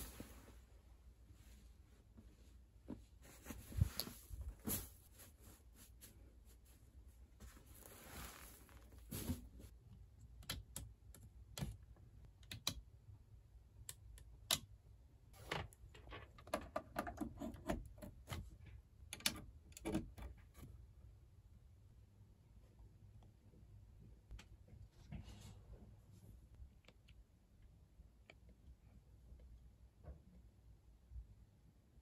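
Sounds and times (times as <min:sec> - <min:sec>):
bedding rustle: 0:00.0 - 0:09.7.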